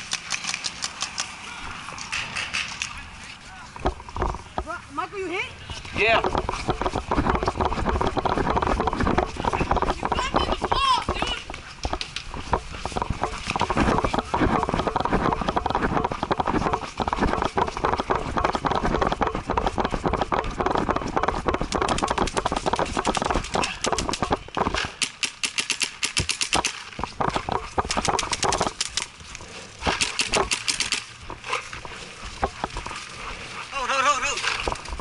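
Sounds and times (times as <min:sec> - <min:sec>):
paintball marker firing rapidly: 0:06.1 - 0:29.1, 0:29.8 - 0:31.1.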